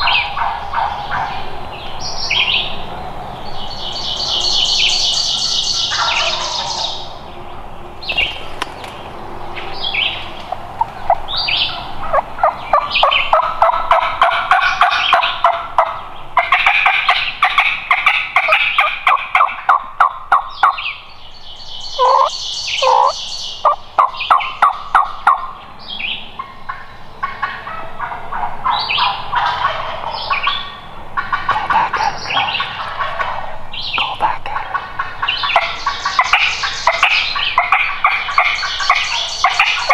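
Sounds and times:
turkey calls yelping: 5.9 - 7.0, 10.8 - 20.8, 21.9 - 25.5, 26.7 - 33.5, 34.7 - 39.9.

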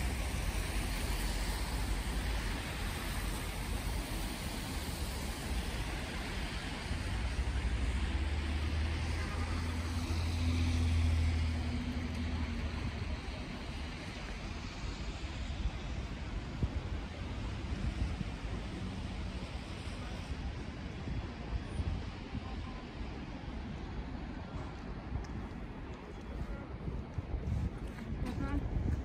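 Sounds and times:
city traffic rumble: 0.0 - 29.0.

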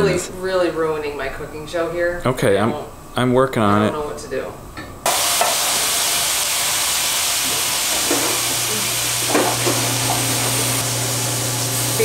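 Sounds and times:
chicken sizzling in oil: 5.1 - 12.0.

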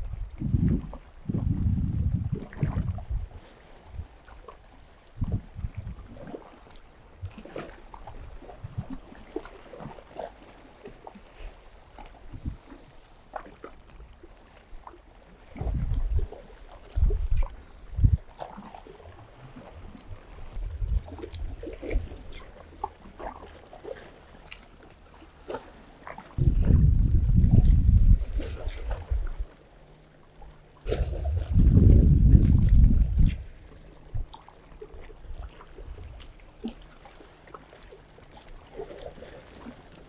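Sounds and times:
low rumbles: 19.2 - 22.3, 26.4 - 29.5, 30.9 - 34.3.

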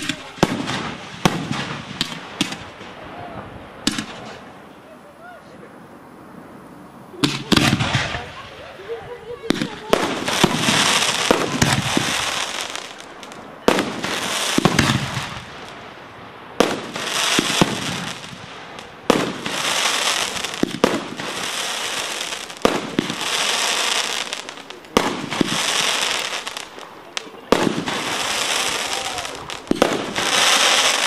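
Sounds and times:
crackling hiss of sparks: 0.0 - 3.0, 9.5 - 31.0.

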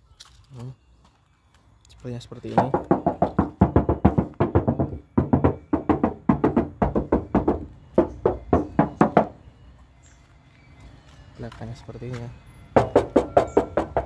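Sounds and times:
knuckles knocking on sheet metal: 2.6 - 9.4, 12.8 - 14.0.

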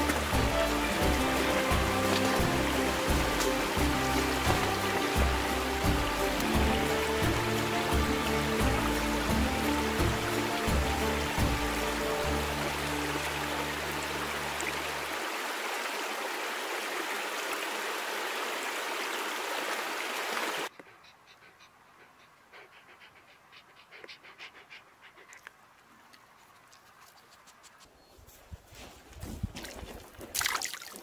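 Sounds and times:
low background music: 0.0 - 15.1
stream rushing: 0.0 - 20.7.

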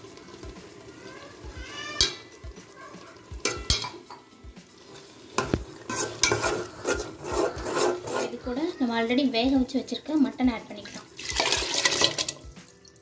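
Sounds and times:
sizzle: 0.0 - 13.0
spoon knocking against pot: 1.9 - 2.6, 3.4 - 4.3, 5.4 - 7.0
spoon scraping cooking pot: 5.0 - 8.7.

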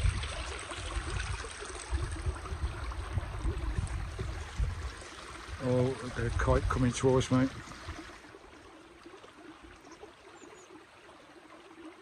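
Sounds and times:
wind buffeting microphone: 0.0 - 8.2.

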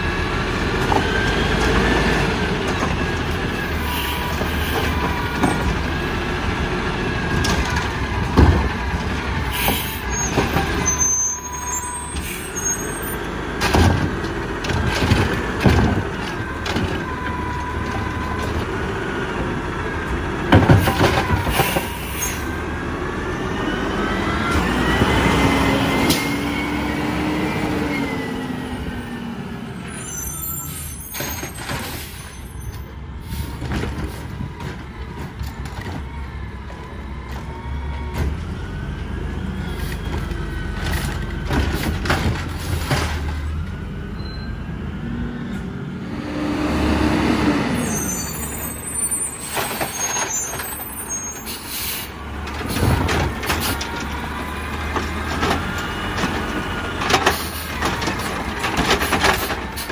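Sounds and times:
engine revving: 23.3 - 28.9, 44.8 - 47.9
garbage truck engine running: 33.2 - 59.9
air brake hiss: 51.5 - 52.1.

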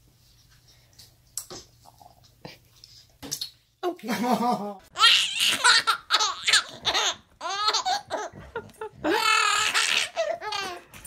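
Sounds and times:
baby laughing: 4.9 - 10.9.

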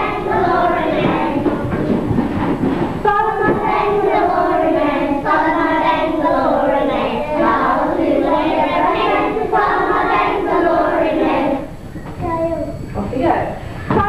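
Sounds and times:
children singing together: 0.0 - 2.3, 3.1 - 11.7.

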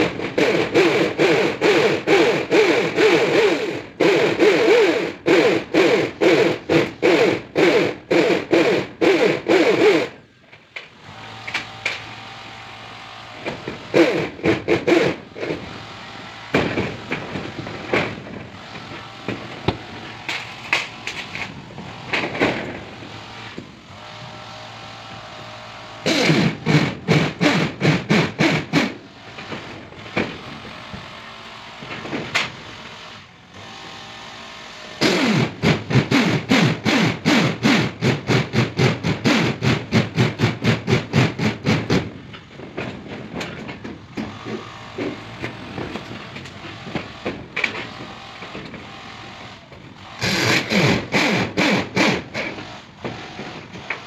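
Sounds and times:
power driver driving screws into metal: 0.3 - 12.2, 26.0 - 30.4, 35.0 - 38.5, 50.2 - 54.0.

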